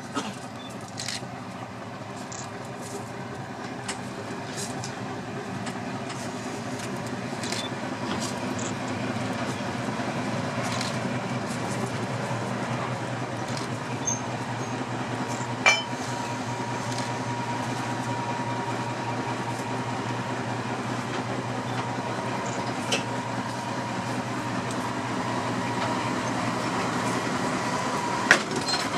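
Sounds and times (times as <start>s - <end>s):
locomotive engine drone: 0.0s - 28.9s
thin steady whine: 10.3s - 28.3s.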